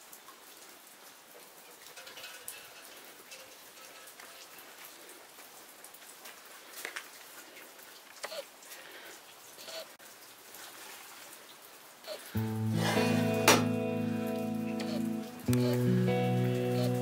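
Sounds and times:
steady low hiss: 11.9s - 17.0s.

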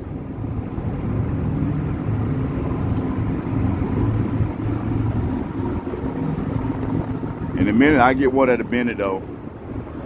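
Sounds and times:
low mechanical rumble: 0.0s - 10.0s.

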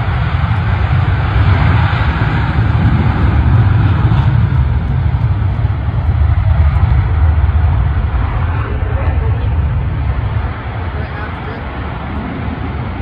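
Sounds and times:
fighter jet taking off: 0.0s - 13.0s.

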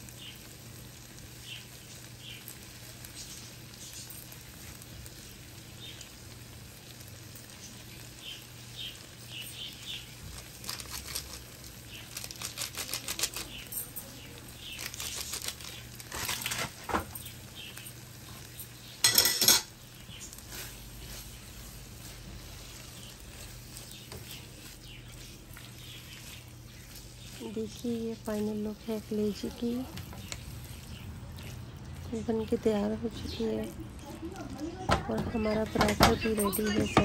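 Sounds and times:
spatula scraping a frying pan: 14.8s - 17.0s, 19.0s - 28.4s.

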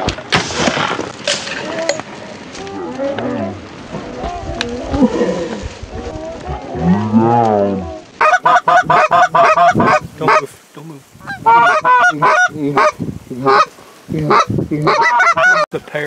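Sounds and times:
goose honks and clucks: 8.2s - 10.4s, 11.2s - 13.7s, 14.3s - 15.7s.

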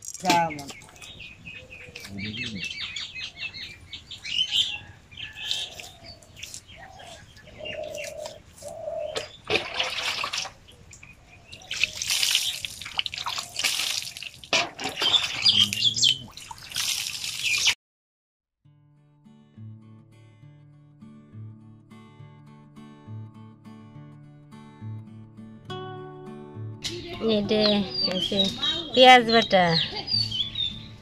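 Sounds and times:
small birds chirping: 0.0s - 9.5s, 10.3s - 17.8s, 26.9s - 31.0s.

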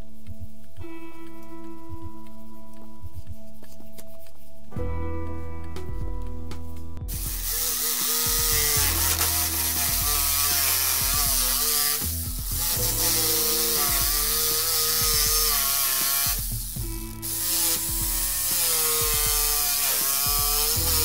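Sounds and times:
electric jigsaw cutting wood: 7.1s - 21.0s.

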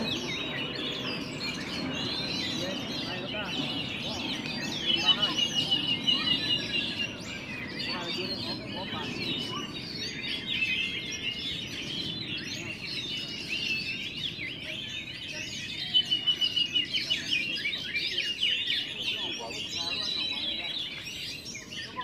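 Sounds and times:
chorus of birds singing: 0.0s - 22.0s
low murmur of crowd: 0.0s - 22.0s.

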